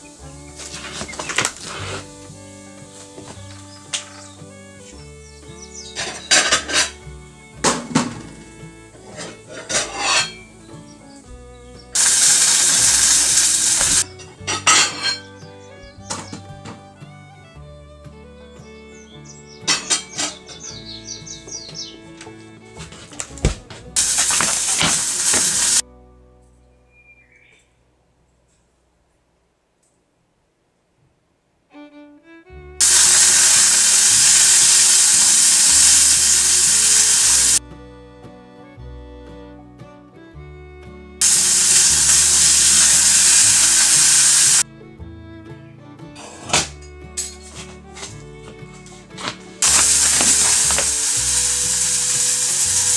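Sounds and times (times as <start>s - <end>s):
background music: 0.0s - 28.1s, 31.8s - 52.9s
kitchen utensils clinking: 9.2s - 10.4s, 24.0s - 25.8s
food sizzling in a hot pan: 12.0s - 14.0s, 24.0s - 25.8s, 32.8s - 37.6s, 41.2s - 44.6s, 49.6s - 52.9s.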